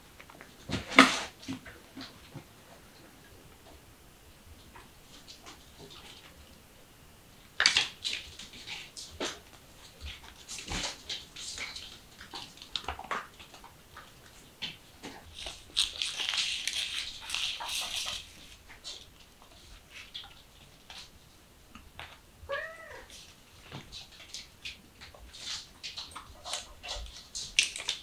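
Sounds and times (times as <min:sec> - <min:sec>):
kitten paws scampering: 0:07.9 - 0:21.2
kitten meowing: 0:22.5 - 0:23.1.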